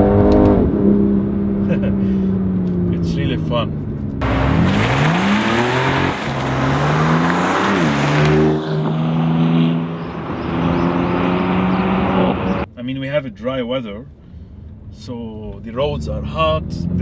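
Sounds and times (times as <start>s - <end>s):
car engine accelerating: 0.0s - 12.7s.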